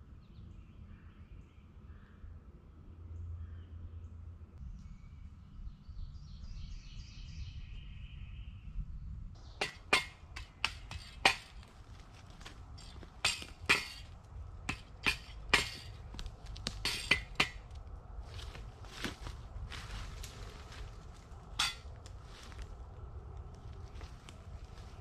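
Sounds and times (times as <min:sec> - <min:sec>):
dry branches snapping: 0:09.6 - 0:25.0.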